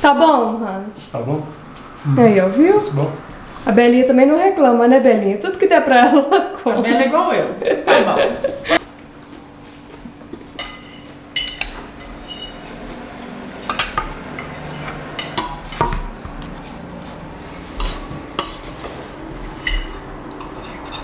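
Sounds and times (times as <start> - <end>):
cutlery clinking on dishes: 10.2 - 12.8, 13.6 - 16.8, 17.7 - 21.0.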